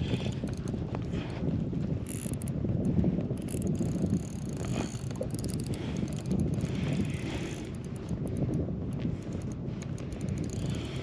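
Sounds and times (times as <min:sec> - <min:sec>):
wind on microphone: 0:00.0 - 0:11.0
fishing reel cranking: 0:02.0 - 0:02.6, 0:03.4 - 0:08.6, 0:09.2 - 0:11.0.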